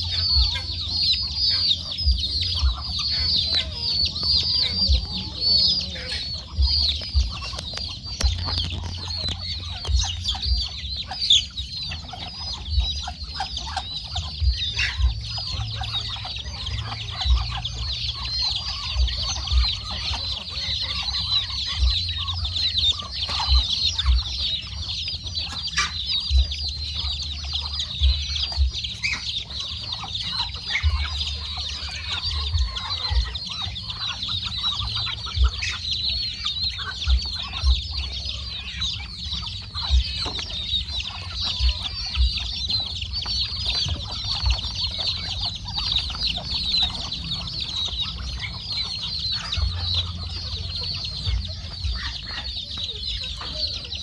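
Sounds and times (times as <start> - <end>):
chicks peeping: 0.0 - 54.0
hens clucking: 0.0 - 54.0
low thumps: 6.4 - 10.7.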